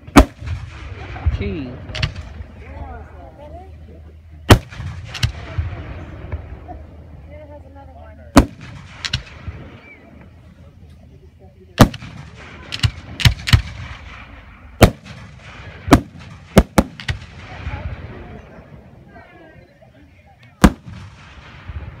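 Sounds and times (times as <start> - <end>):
firework bangs: 0.0 - 2.7, 4.5 - 7.0, 8.3 - 10.4, 11.8 - 18.9, 20.6 - 22.0.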